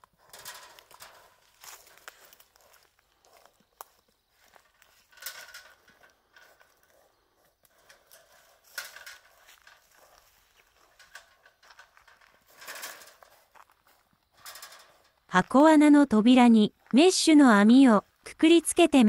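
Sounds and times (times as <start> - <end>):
footsteps crunching dry leaves: 1.3 - 5.1.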